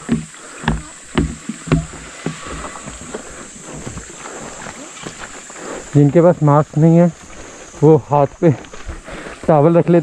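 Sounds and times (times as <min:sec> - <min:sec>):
footsteps on wooden footbridge: 0:00.0 - 0:05.9, 0:07.1 - 0:09.6.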